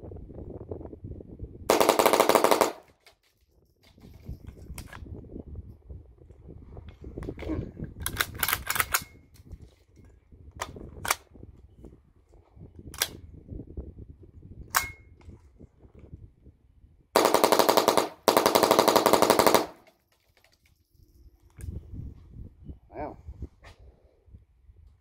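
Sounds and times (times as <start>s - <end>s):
rapid rifle fire: 1.7s - 2.9s, 17.2s - 19.8s
rifle shots: 1.7s - 2.9s, 17.2s - 19.8s.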